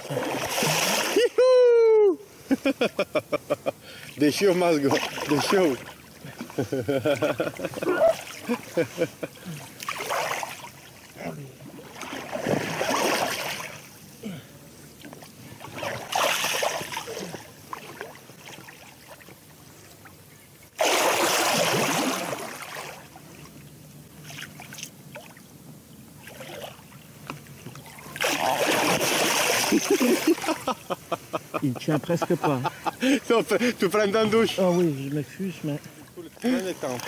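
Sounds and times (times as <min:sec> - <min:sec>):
loud splash: 0:00.0 - 0:01.4, 0:11.7 - 0:13.8, 0:15.6 - 0:17.3, 0:20.8 - 0:23.1, 0:28.2 - 0:30.6
water splashing and sloshing: 0:00.0 - 0:01.4, 0:03.8 - 0:14.2, 0:14.8 - 0:37.0.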